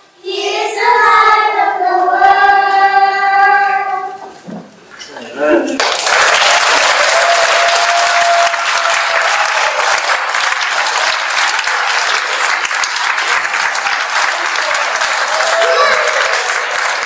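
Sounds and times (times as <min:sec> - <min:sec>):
audience applause: 0:05.8 - 0:17.0.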